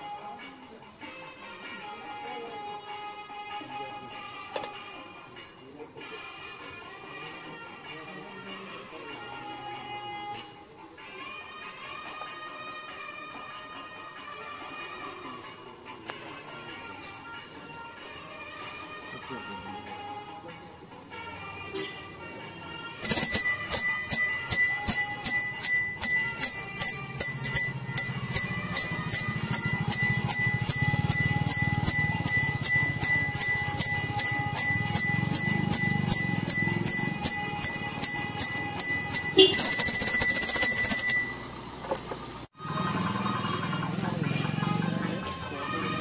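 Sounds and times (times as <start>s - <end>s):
brass hand bell ringing: 21.8s - 22.4s, 23.0s - 42.1s.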